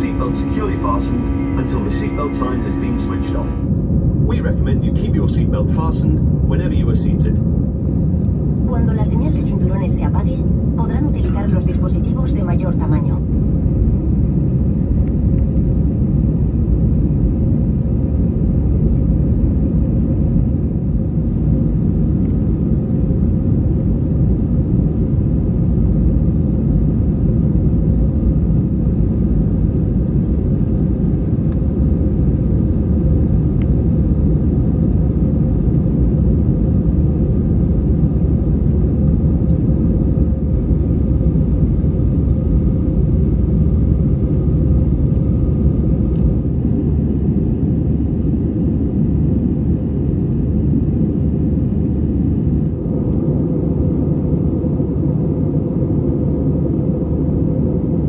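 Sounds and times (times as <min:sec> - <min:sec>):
jet engine cabin rush: 0:00.0 - 0:13.4
faint high whine: 0:00.0 - 0:14.2, 0:16.3 - 0:58.0.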